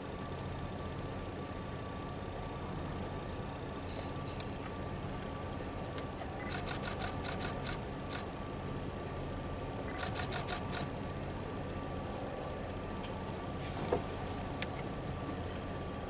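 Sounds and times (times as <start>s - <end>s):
camera shutter clicking: 6.5s - 8.2s, 9.9s - 10.9s.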